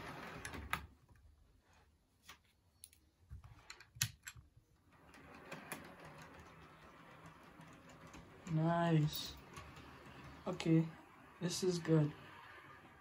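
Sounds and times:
model locomotive whir: 0:05.0 - 0:13.0
model train clicks on track: 0:05.2 - 0:10.9.

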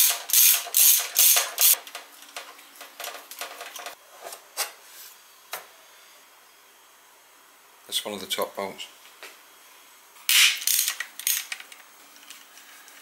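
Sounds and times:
ratchet wrench ratcheting: 0:00.0 - 0:01.8, 0:10.3 - 0:11.6.

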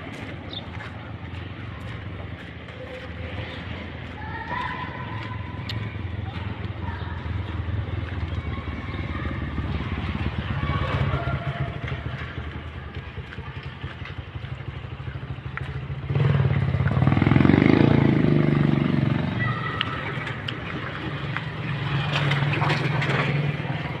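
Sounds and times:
small motorcycle engine running: 0:05.4 - 0:24.0.

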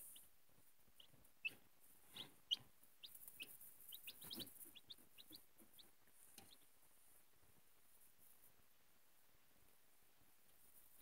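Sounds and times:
chicks peeping: 0:00.0 - 0:08.6.

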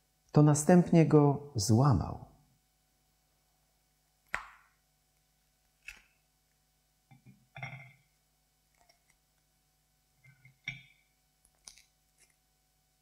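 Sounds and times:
bread cracking: 0:05.8 - 0:06.2, 0:11.4 - 0:12.4.

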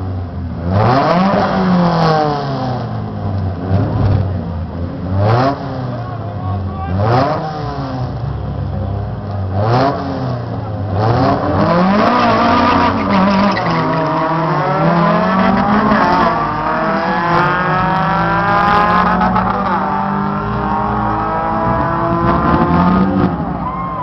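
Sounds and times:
drag car engine accelerating: 0:06.9 - 0:24.0.

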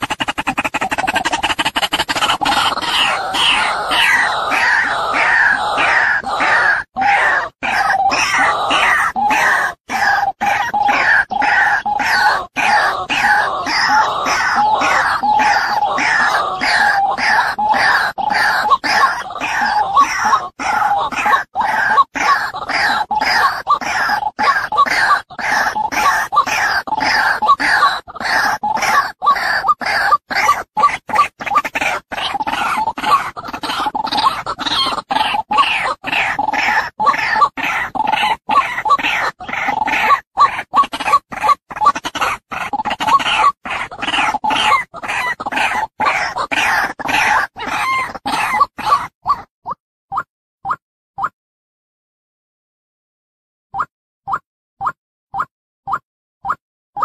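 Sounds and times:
waterhen harsh croaking call: 0:00.0 - 0:49.5
waterhen calling: 0:41.8 - 0:49.5.

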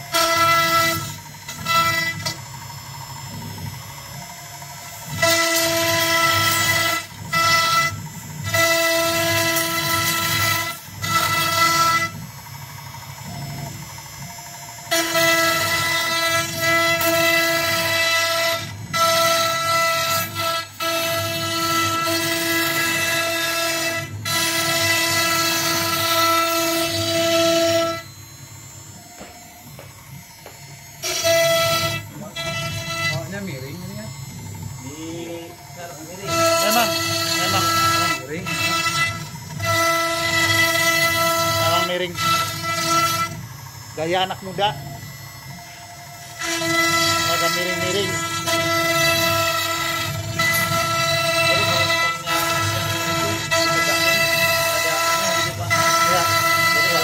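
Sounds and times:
cnc router milling wood: 0:00.0 - 0:57.0.

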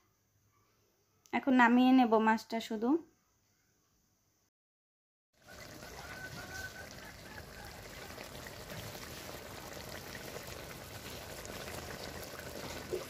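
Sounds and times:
curry bubbling in a pan: 0:05.4 - 0:13.0.

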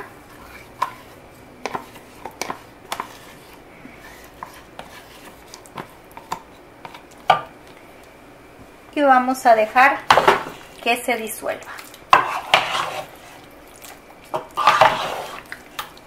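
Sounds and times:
wooden spoon scraping plastic tub: 0:00.0 - 0:07.0, 0:12.1 - 0:13.5, 0:14.4 - 0:15.5.

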